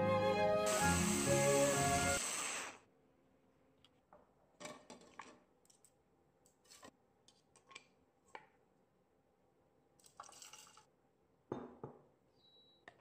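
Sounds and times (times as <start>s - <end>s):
music: 0.0s - 2.2s.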